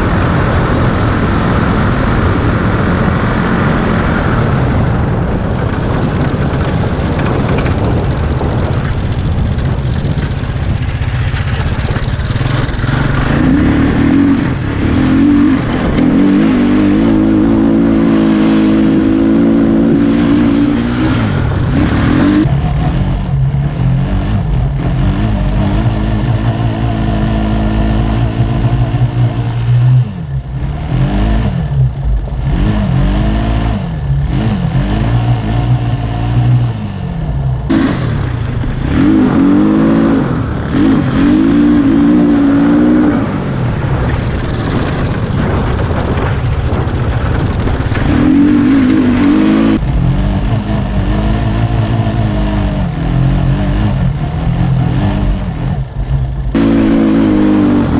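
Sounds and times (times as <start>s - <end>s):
go-kart engine revving: 0.0s - 57.9s
road noise: 0.0s - 57.9s
wind noise: 0.0s - 57.9s.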